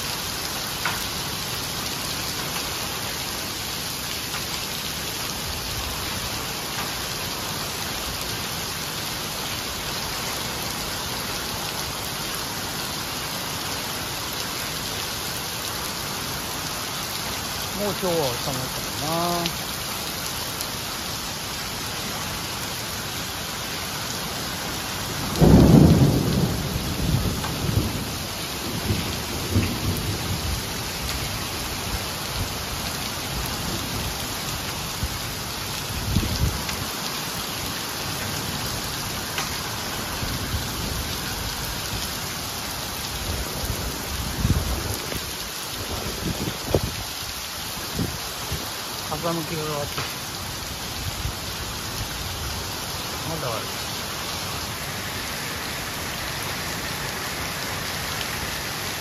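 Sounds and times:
heavy rain and hail on pavement: 0:00.0 - 0:59.0
thunder clap and rumble: 0:25.3 - 0:30.7.

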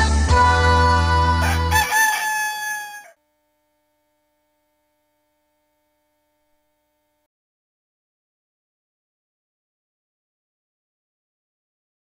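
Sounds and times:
rooster crowing: 0:01.4 - 0:03.2.

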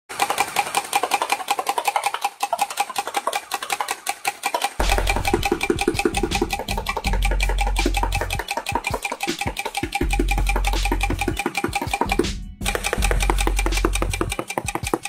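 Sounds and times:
toy blaster rapid firing: 0:00.1 - 0:15.0
music with low bass: 0:04.8 - 0:08.4, 0:10.0 - 0:11.4, 0:12.0 - 0:14.4.

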